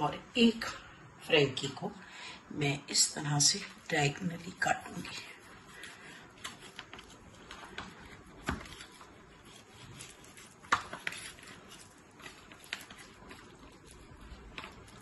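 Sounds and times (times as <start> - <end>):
knife sawing through flatbread: 7.9 - 14.8.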